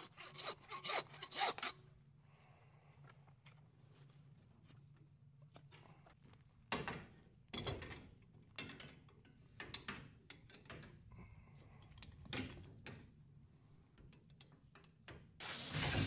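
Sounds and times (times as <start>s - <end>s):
hand saw rasping through bone: 0.0s - 1.7s.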